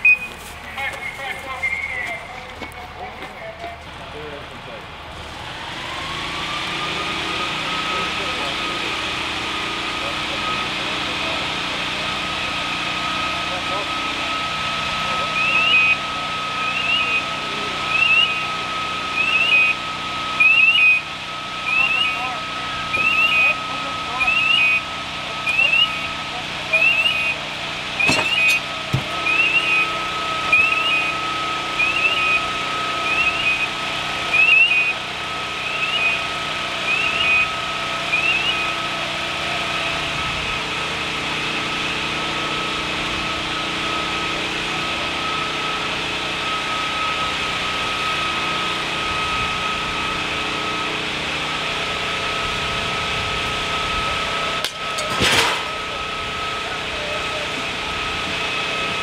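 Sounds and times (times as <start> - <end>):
fire engine pump running: 0.0 - 59.0
electronic chirp: 15.3 - 16.0, 16.6 - 17.3, 17.9 - 18.4, 19.2 - 19.8, 20.4 - 21.0, 21.7 - 22.3, 22.9 - 23.6, 24.2 - 24.8, 25.4 - 26.1, 26.7 - 27.4, 28.0 - 31.2, 31.8 - 33.7, 34.3 - 35.0, 35.6 - 36.2, 36.9 - 37.5, 38.1 - 38.8.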